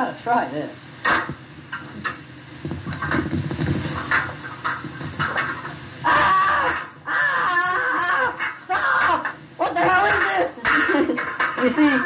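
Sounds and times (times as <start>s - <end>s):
knocks and clatter: 1.1s - 5.7s
person shouting: 6.0s - 10.6s.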